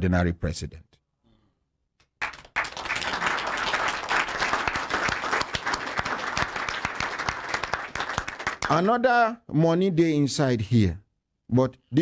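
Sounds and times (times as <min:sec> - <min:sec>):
audience applauding: 0:02.2 - 0:08.8.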